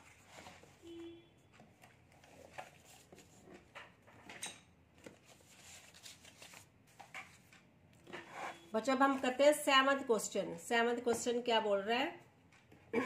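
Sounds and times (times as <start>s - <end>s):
paper sheets rustling: 5.0s - 9.4s.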